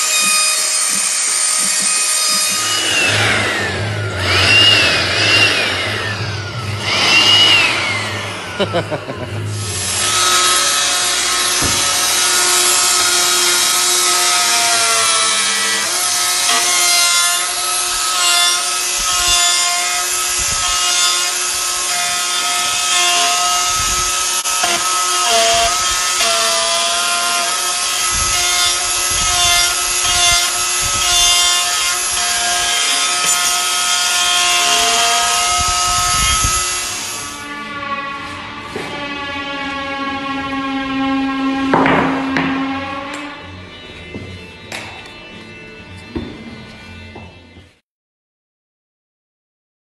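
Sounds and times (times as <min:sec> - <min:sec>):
router bit cutting wood: 0:00.0 - 0:43.6
router motor whine: 0:00.0 - 0:46.0.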